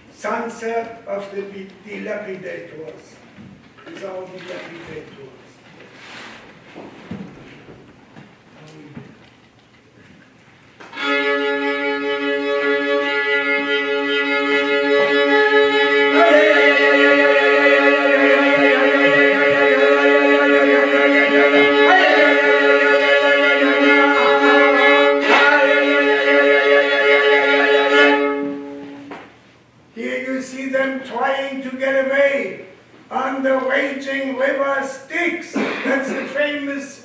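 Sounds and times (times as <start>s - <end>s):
held instrumental chord: 11.0s - 29.1s.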